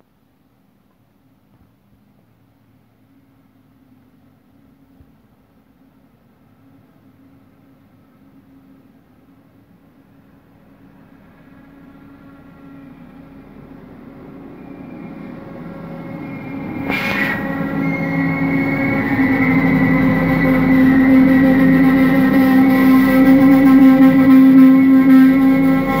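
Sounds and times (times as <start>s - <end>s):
train approaching with pitched hum: 0.0s - 26.0s
short rush of noise: 16.6s - 18.4s.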